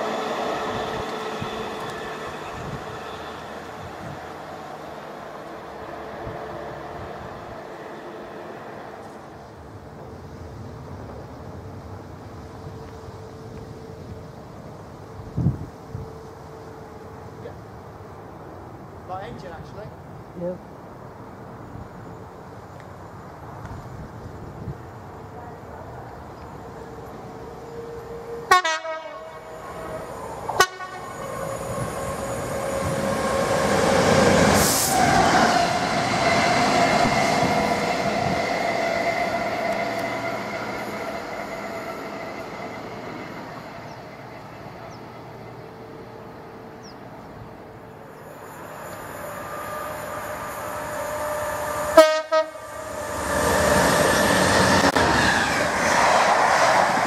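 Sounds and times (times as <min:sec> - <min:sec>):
diesel locomotive rushing past: 0:00.0 - 0:57.0
freight train rumbling past: 0:00.0 - 0:57.0
train horn blasts: 0:27.9 - 0:29.8, 0:30.5 - 0:31.8, 0:50.0 - 0:53.1.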